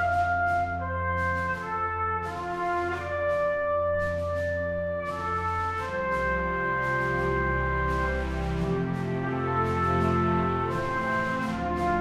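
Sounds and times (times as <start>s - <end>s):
brass-led orchestral music: 0.0s - 12.0s.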